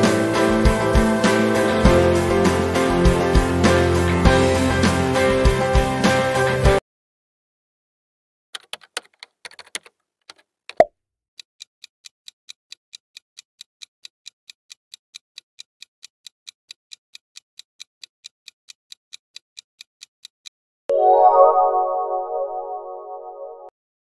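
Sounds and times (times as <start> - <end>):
quick clicks: 8.6 - 10.9.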